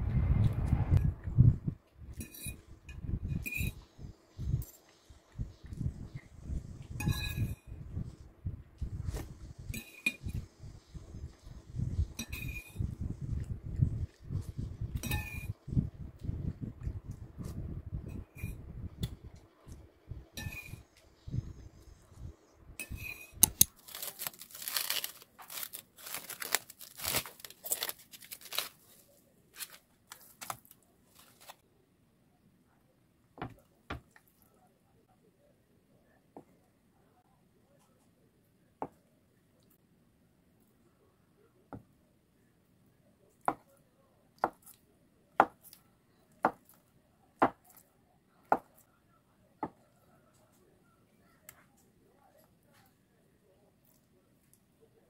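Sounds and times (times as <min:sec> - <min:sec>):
cling wrap crinkling and tearing: 0:23.4 - 0:31.6.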